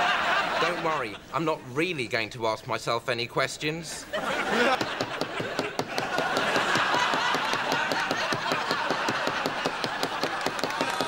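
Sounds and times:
studio audience laughing: 0.0s - 1.3s, 4.0s - 11.0s.

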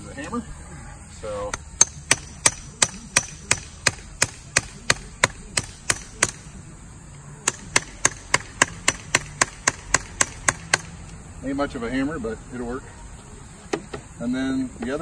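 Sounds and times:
small hammer striking: 1.5s - 6.4s, 7.4s - 11.0s.

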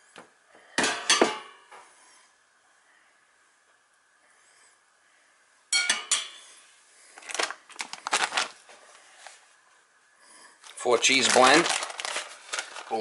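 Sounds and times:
dishes clattering: 0.8s - 1.6s.

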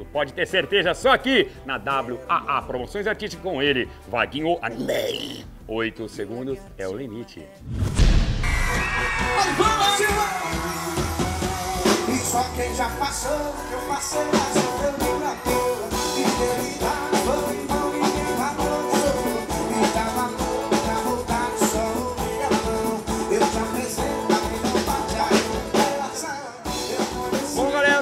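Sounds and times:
band music: 8.4s - 28.0s
drum kit beat: 8.4s - 28.0s
guitars: 8.4s - 28.0s.

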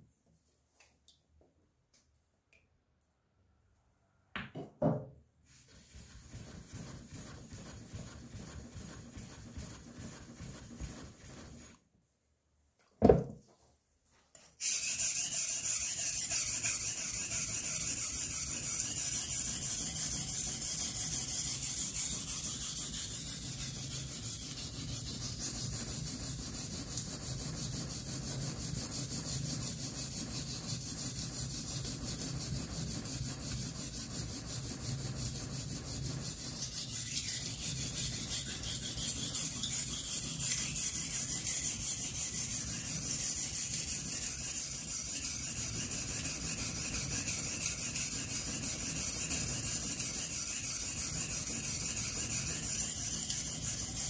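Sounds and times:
knock: 4.4s - 5.2s, 13.0s - 13.4s.

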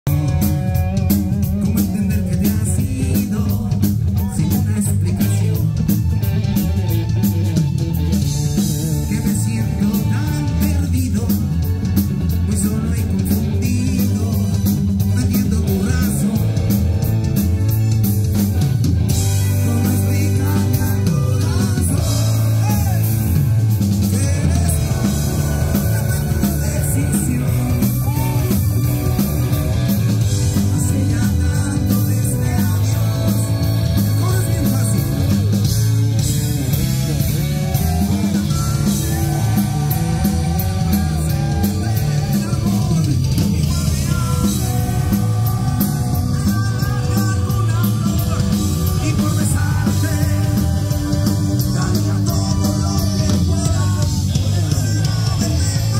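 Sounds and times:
drum kit: 0.0s - 55.9s
keyboard: 0.0s - 55.9s
electric guitar: 0.1s - 55.9s
man singing: 0.1s - 55.9s.

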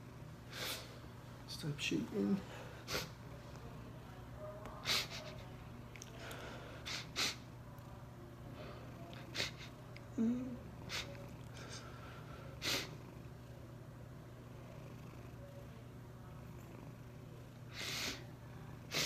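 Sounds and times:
short sniffs: 0.5s - 0.9s, 2.8s - 3.2s, 6.8s - 7.4s, 12.6s - 13.0s, 17.7s - 18.2s.

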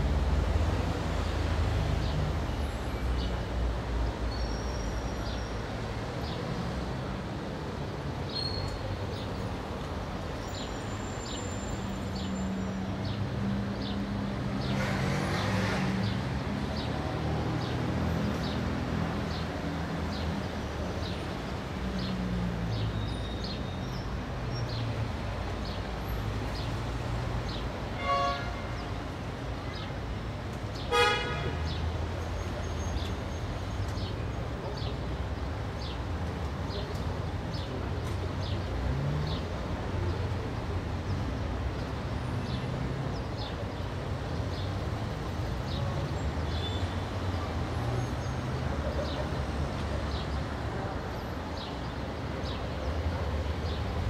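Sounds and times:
traffic engines humming: 0.0s - 54.0s
horn toots: 30.9s - 31.6s.

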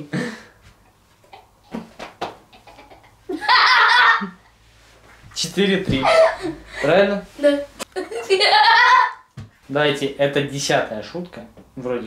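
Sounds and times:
people laughing: 2.6s - 4.4s, 6.0s - 7.0s, 8.0s - 9.2s.

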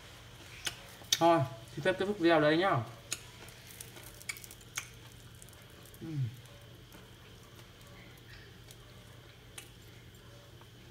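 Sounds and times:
faint steady hum: 0.0s - 10.9s
fried fish crackling broken by hand: 3.1s - 8.9s
murmured voice: 6.0s - 6.4s.

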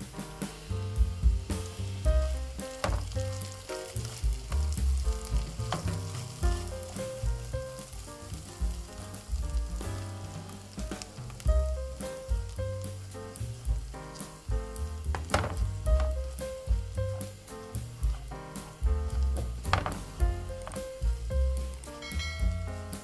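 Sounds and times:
background music: 0.0s - 23.0s
chicken and mushrooms sizzling: 0.0s - 23.0s
spatula stirring in pan: 0.6s - 11.5s.

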